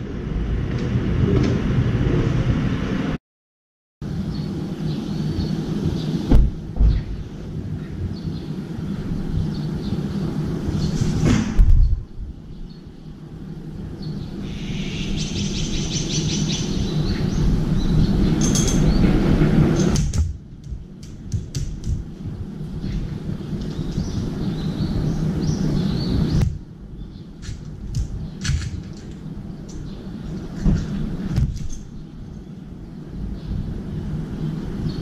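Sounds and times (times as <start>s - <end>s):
low background rumble: 4.0s - 35.0s
high bird chirping: 13.8s - 19.1s.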